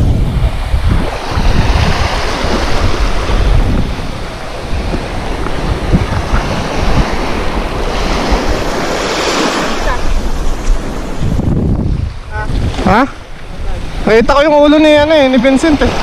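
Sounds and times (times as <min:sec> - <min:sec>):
small waves washing on beach: 0:00.0 - 0:16.0
wind buffeting microphone: 0:00.0 - 0:16.0.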